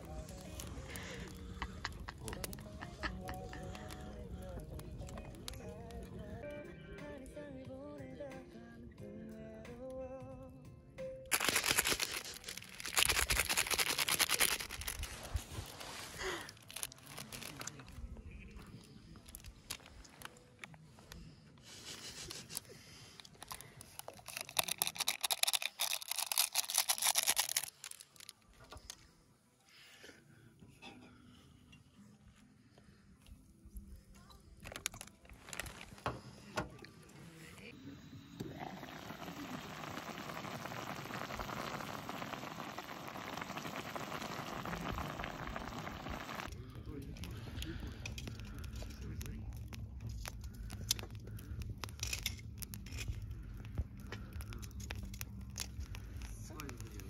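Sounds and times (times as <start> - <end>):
foil sachet crinkling: 0.0 - 5.2, 11.3 - 20.4, 21.9 - 29.0, 34.6 - 36.0, 38.8 - 46.5, 47.3 - 57.0
soup boiling hard: 11.3 - 17.6, 24.1 - 28.2, 38.3 - 57.0.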